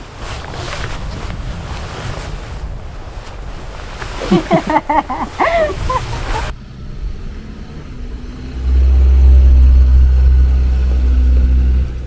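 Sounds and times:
car engine driving past: 5.9s - 12.0s.

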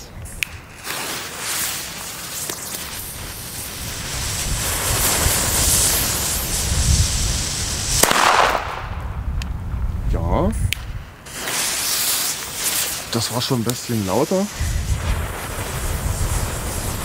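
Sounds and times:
firecracker fuse hissing: 0.0s - 9.0s, 11.2s - 17.0s
firecracker bang: 0.8s - 9.3s.

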